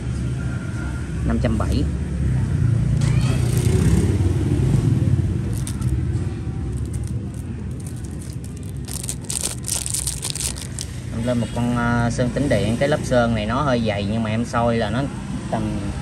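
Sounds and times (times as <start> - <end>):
passing vehicle rumble: 2.1 - 11.2.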